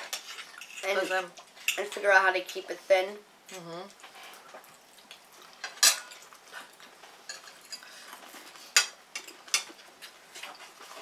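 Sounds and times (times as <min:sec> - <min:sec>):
cutlery scraping on plates: 0:00.0 - 0:01.9, 0:05.6 - 0:06.2, 0:07.2 - 0:11.0.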